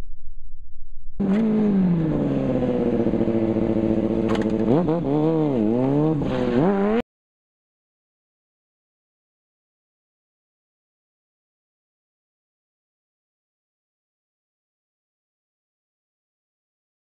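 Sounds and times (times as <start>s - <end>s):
motorcycle engine revving: 1.2s - 7.0s.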